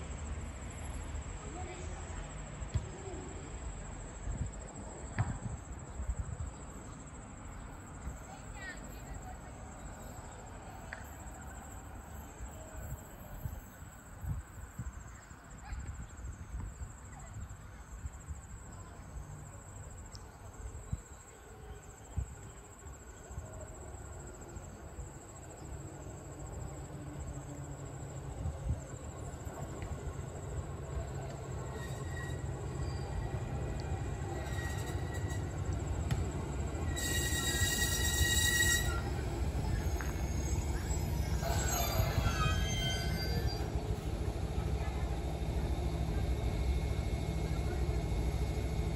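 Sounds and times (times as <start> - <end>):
electric train rumbling: 22.8 - 48.9.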